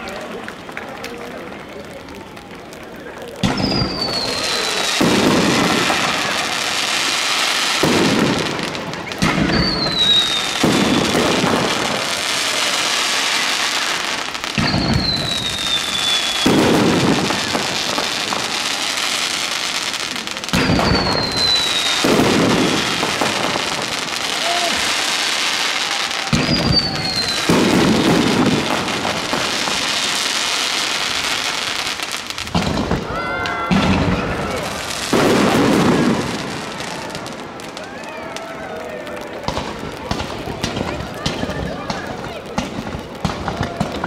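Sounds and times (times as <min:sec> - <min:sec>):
fireworks crackling hiss: 0:00.0 - 0:44.0
deep firework booms: 0:03.4 - 0:37.8
falling firework whistle: 0:03.4 - 0:39.8.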